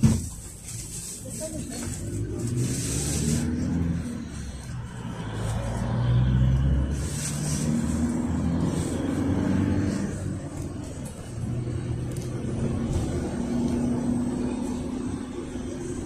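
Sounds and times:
minibus engine: 0.0s - 16.0s
road and tyre noise: 0.0s - 16.0s.

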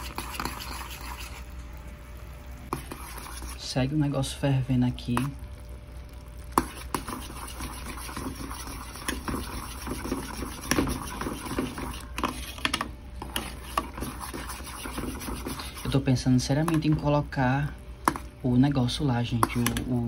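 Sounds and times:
syrup bubbling in metal pan: 0.0s - 17.3s.

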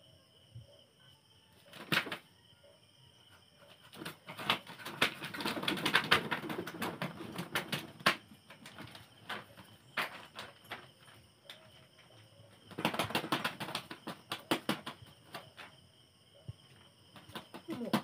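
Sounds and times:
chicken flapping wings: 1.7s - 2.2s, 3.9s - 11.7s, 12.6s - 15.7s, 17.1s - 18.0s.

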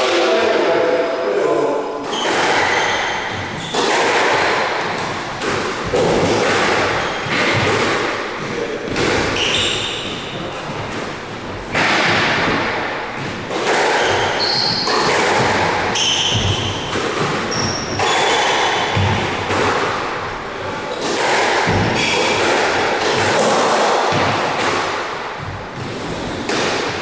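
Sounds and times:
squash ball hit by rackets: 2.0s - 27.0s
sneaker squeaks on floor: 2.1s - 4.0s, 6.8s - 7.6s, 9.2s - 10.9s, 14.0s - 19.2s.

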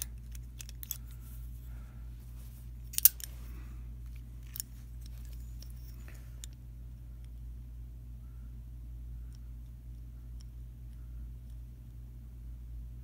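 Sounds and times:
metallic padlock clicks: 0.0s - 1.2s, 2.9s - 3.3s.

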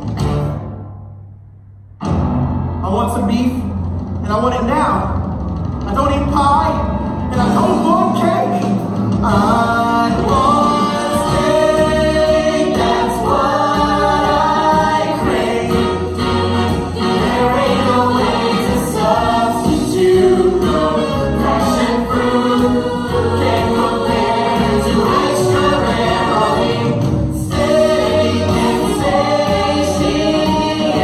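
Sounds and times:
backing track: 0.0s - 31.0s
voices singing together: 9.2s - 31.0s.

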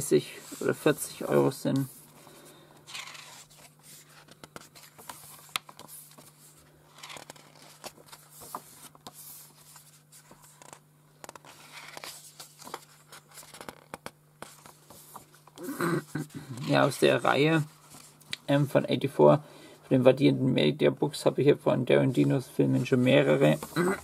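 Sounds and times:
steady low hum: 0.0s - 24.0s
paper pages turning: 2.8s - 18.4s, 22.8s - 24.0s.

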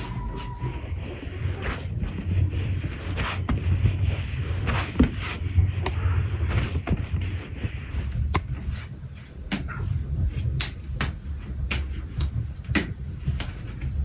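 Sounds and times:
dough kneaded on wooden board: 0.0s - 14.0s.

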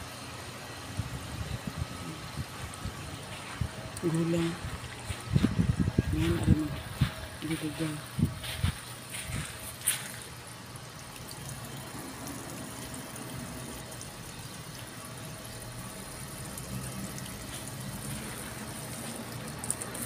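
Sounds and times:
water running from a hose: 0.0s - 20.0s.

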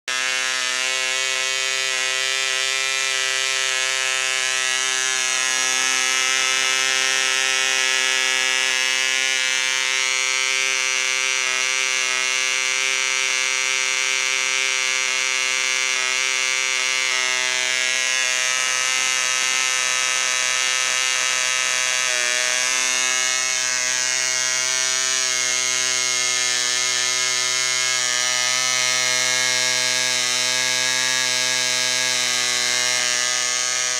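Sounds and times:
model engine buzzing: 0.1s - 33.9s.

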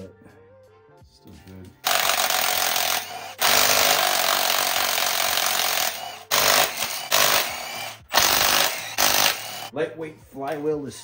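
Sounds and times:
impact wrench hammering: 1.8s - 9.7s.

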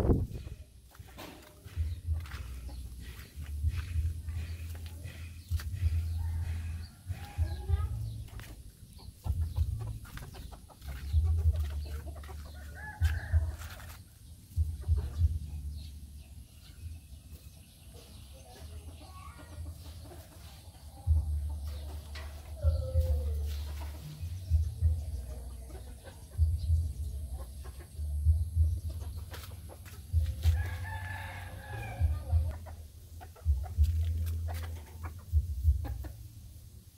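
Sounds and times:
low thumps on microphone: 0.0s - 4.6s
chickens clucking: 0.0s - 36.9s.

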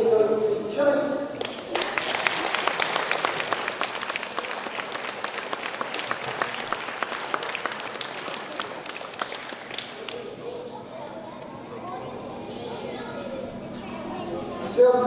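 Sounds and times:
crowd applauding: 1.4s - 10.4s.

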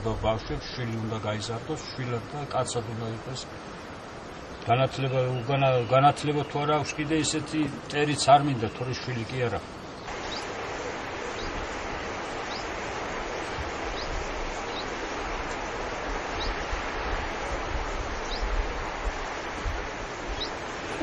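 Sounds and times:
wind rumbling on microphone: 0.0s - 8.0s, 8.7s - 21.0s
bird chirping: 9.9s - 10.5s, 12.4s - 12.8s, 13.4s - 15.0s, 18.2s - 18.6s, 20.3s - 21.0s.

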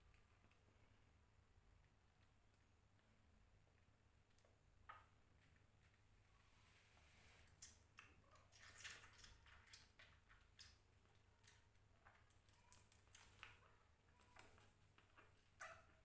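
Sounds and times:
kittens suckling from a bottle: 7.4s - 16.0s.

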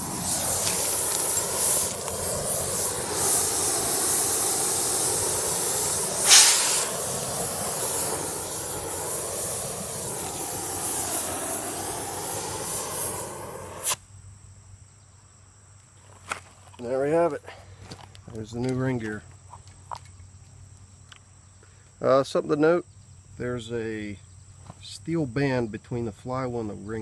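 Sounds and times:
torch flame hissing: 0.0s - 14.0s.

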